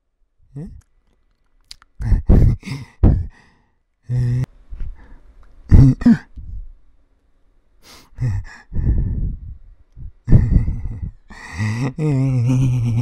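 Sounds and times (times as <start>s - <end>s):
man humming: 0.5s - 0.9s, 1.7s - 3.4s, 4.0s - 4.6s, 5.7s - 6.6s, 8.0s - 13.0s
man sighing and grunting: 2.0s - 4.5s, 5.7s - 6.3s, 8.0s - 8.7s, 10.2s - 13.0s.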